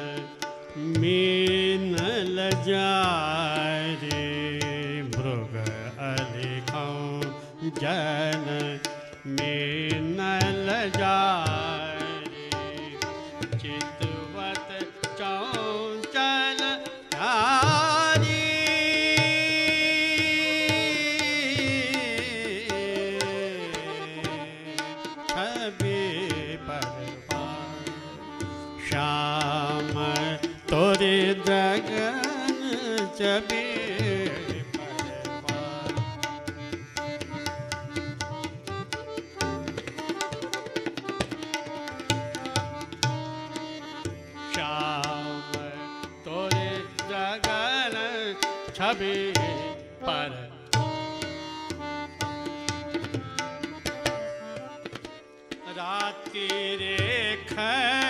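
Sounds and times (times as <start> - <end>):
man singing devotional music: 0.0 - 58.0
tabla strokes: 32.8 - 44.2.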